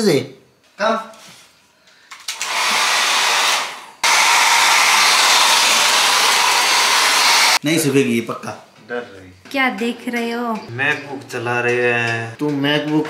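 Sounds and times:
hair dryer blowing: 0:02.3 - 0:07.6.

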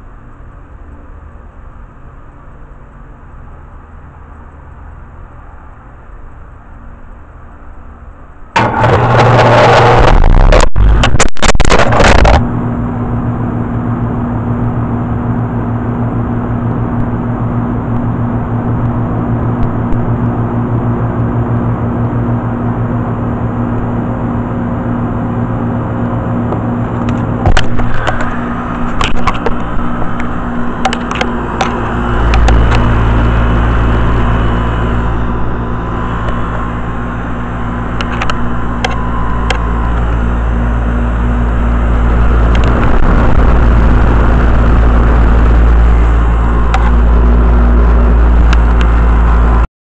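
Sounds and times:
air conditioner hum with fan: 0:00.0 - 0:49.6
deep rumble: 0:08.5 - 0:49.7
sharp clicks and knocks: 0:08.6 - 0:12.5, 0:26.0 - 0:33.5, 0:38.0 - 0:40.2, 0:42.5 - 0:45.2, 0:46.6 - 0:47.2.

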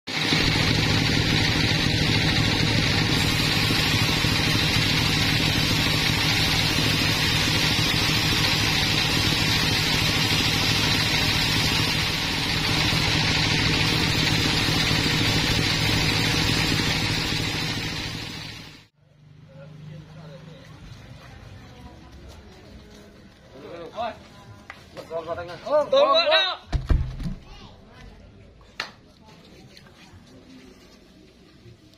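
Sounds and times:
band sawmill droning: 0:00.1 - 0:18.9.

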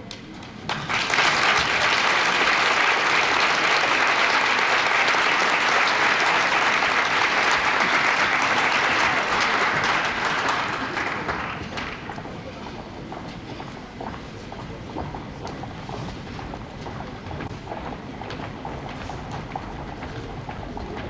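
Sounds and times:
audience applauding: 0:00.7 - 0:12.5.

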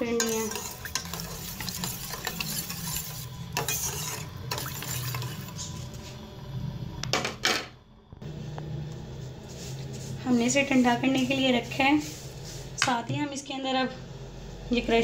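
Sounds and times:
metal spoon scraping metal pan: 0:00.0 - 0:05.9
steady low hum: 0:00.0 - 0:15.0.

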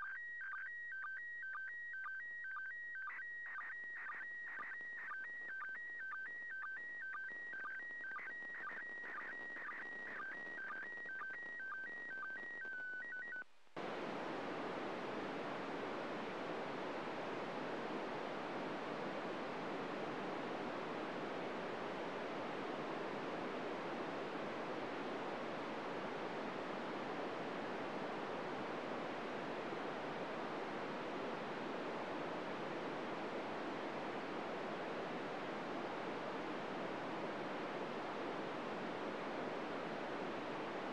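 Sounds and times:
radio static hiss: 0:13.8 - 0:40.9.

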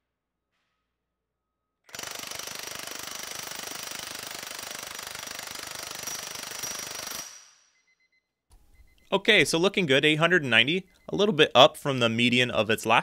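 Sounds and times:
impact wrench hammering on a bolt: 0:01.9 - 0:07.6.

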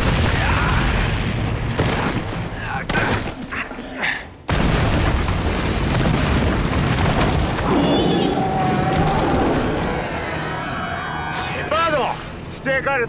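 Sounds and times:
loud explosion: 0:00.0 - 0:02.5, 0:04.5 - 0:10.4
explosion rumble: 0:04.5 - 0:10.8.

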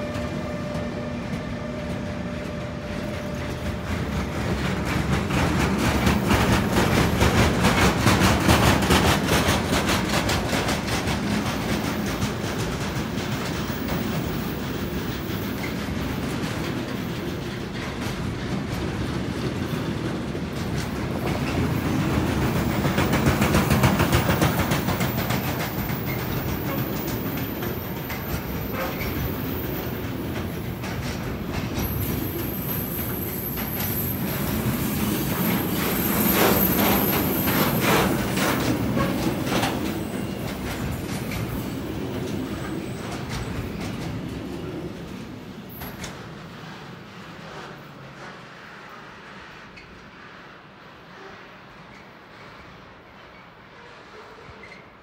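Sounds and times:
train wheels clacking over rail joints: 0:00.0 - 0:50.4
high wheel squeal: 0:31.8 - 0:43.9.

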